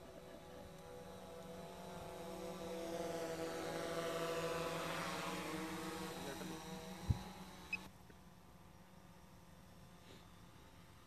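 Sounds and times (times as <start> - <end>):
drone propellers buzzing: 0.0 - 7.9.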